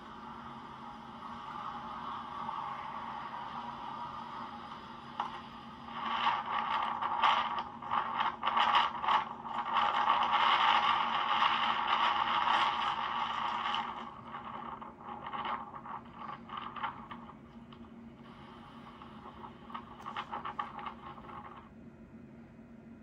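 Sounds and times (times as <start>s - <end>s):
rustling scratching noise: 5.9s - 17.7s, 18.3s - 21.7s.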